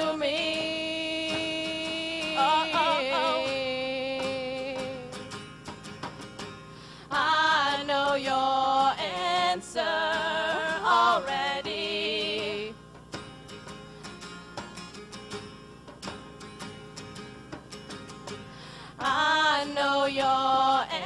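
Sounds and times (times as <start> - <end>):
women singing: 0.0 - 5.1, 7.1 - 12.8, 19.0 - 21.0
acoustic guitar: 0.0 - 21.0.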